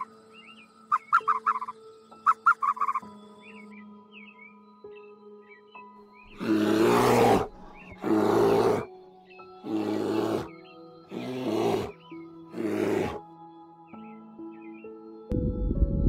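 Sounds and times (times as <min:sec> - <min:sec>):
soft background music: 0:00.0 - 0:16.0
bears growling: 0:06.3 - 0:08.9, 0:09.6 - 0:10.5, 0:11.1 - 0:13.2.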